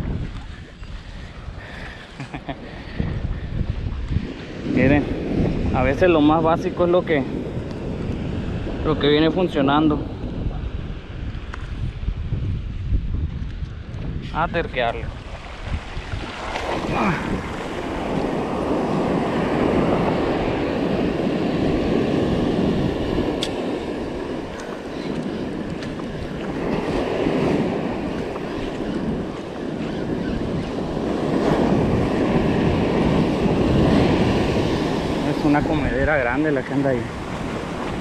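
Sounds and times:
wind buffeting microphone: 0.0s - 38.0s
surf breaking on beach: 14.9s - 38.0s.

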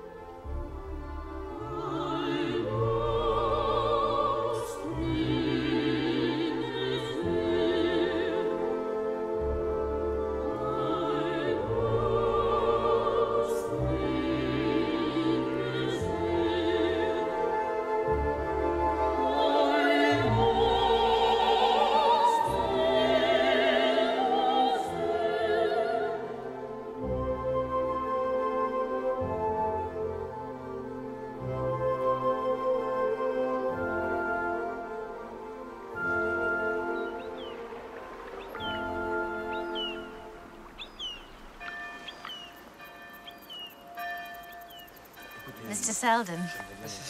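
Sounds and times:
orchestral accompaniment: 0.0s - 47.0s
operatic singing: 0.1s - 40.4s.

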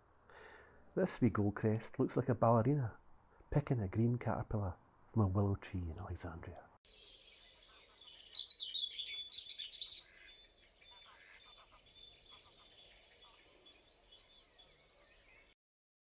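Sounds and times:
songbird singing high notes: 6.9s - 15.5s.

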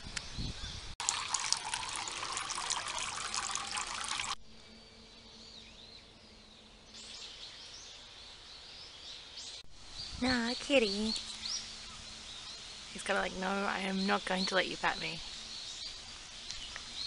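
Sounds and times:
water splashing and trickling: 1.0s - 4.4s.

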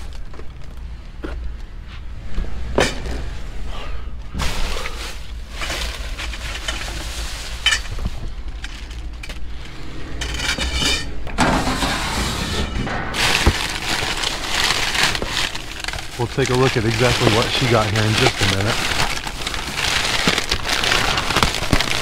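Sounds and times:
steady low hum: 0.0s - 22.0s
trash bags rustling: 4.2s - 12.0s, 12.6s - 22.0s
items knocking and clattering: 12.6s - 22.0s.

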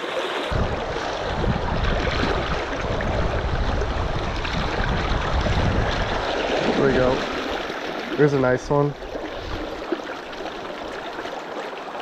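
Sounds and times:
river rushing and splashing: 0.0s - 12.0s
low rumble: 0.5s - 7.6s.

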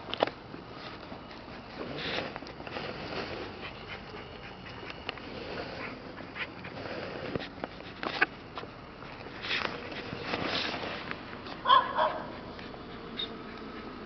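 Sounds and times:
dogs sniffing: 0.6s - 14.0s
dog yip: 11.6s - 12.4s.

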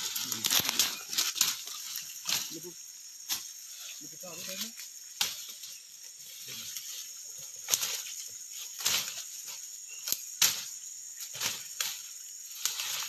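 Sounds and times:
twigs snapping underfoot: 0.0s - 2.6s, 4.6s - 5.8s, 7.6s - 13.0s
leaves rustling: 0.0s - 13.0s.

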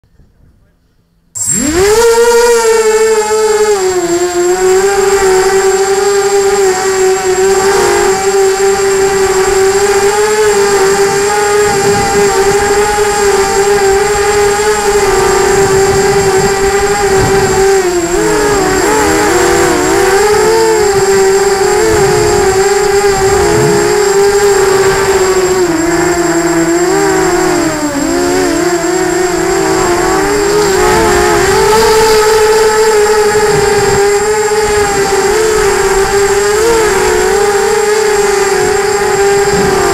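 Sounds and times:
drone motors whining: 1.2s - 39.9s
wind buffeting microphone: 1.5s - 39.9s.

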